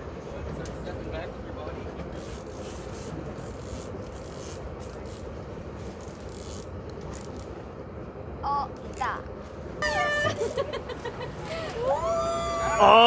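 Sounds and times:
boat engine rumble: 0.0s - 13.0s
fishing reel rasping: 2.2s - 5.3s, 6.0s - 7.5s.

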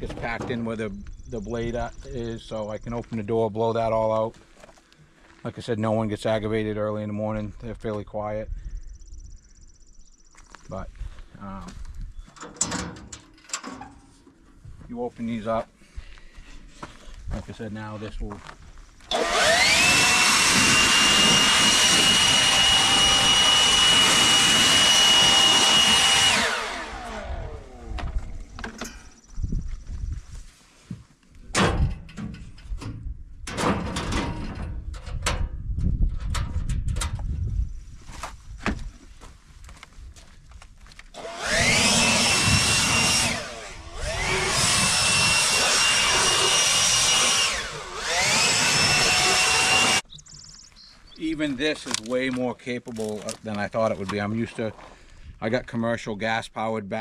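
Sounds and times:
cordless blower whining: 19.1s - 28.9s, 41.1s - 50.0s.

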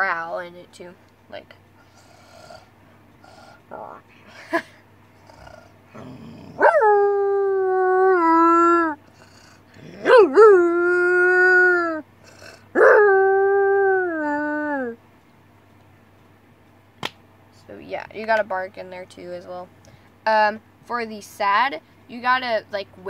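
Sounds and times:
girl imitating wolf howl: 7.0s - 9.0s, 10.0s - 12.0s, 12.8s - 15.0s.

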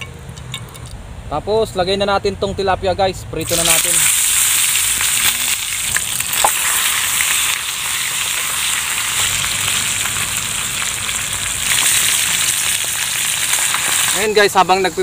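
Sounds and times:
fish sizzling in oil: 3.4s - 15.0s.

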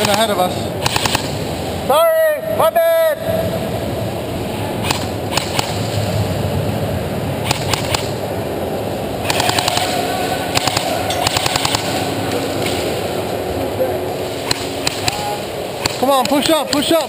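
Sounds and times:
airsoft rifles firing: 0.0s - 1.5s, 4.8s - 6.1s, 7.4s - 8.2s, 9.2s - 13.0s, 14.4s - 17.0s.

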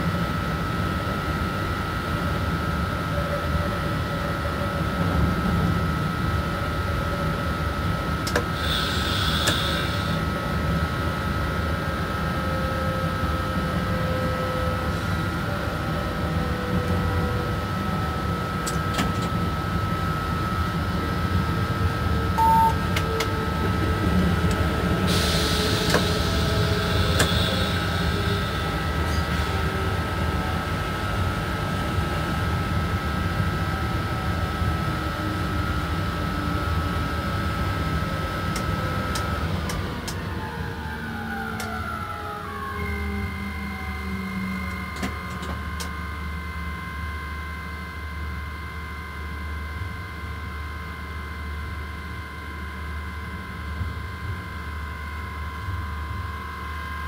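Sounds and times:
electric locomotive rumble and whine: 0.0s - 57.0s
hiss: 8.6s - 10.2s, 25.1s - 28.2s
short beep: 22.4s - 22.9s.

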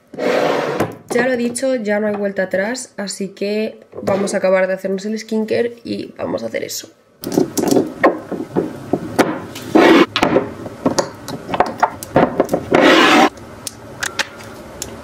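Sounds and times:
glass rubbing sounds: 12.7s - 13.3s.

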